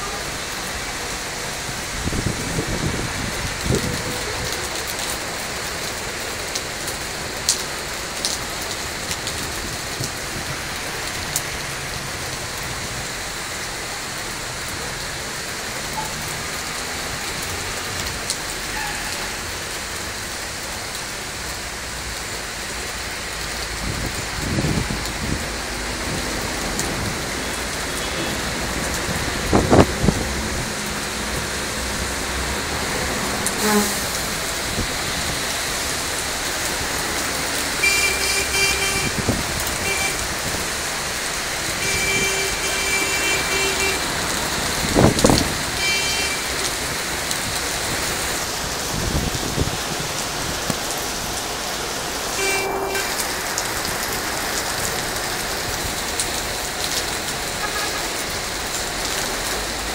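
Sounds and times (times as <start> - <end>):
heavy rain pouring: 0.0 - 59.9.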